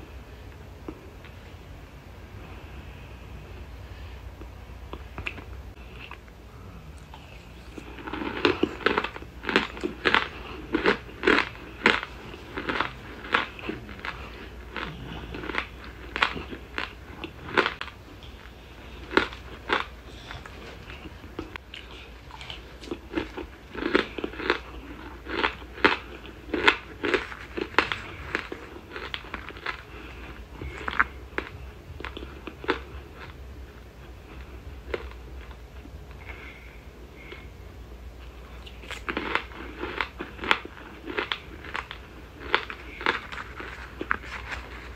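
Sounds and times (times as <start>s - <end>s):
crunchy chewing: 4.4s - 37.5s, 38.2s - 44.9s.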